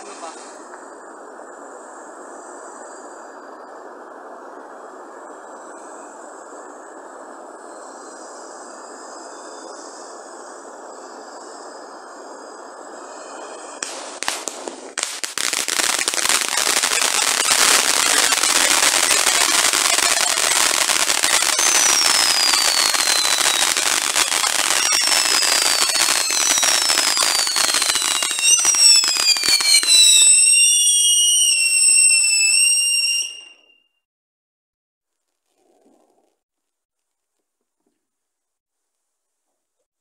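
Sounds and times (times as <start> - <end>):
high falling firework whistles: 7.5 - 34.0
firework fountains hissing: 10.6 - 33.5
fireworks crackling: 12.9 - 33.6
sharp firework cracks: 13.8 - 31.6.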